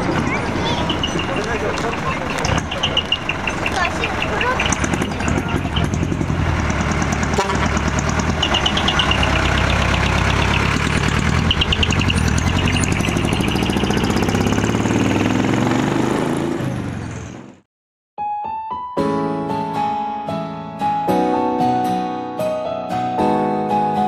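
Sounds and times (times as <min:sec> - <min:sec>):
loud vehicle exhaust running: 0:00.0 - 0:17.6
piano music: 0:18.2 - 0:24.0.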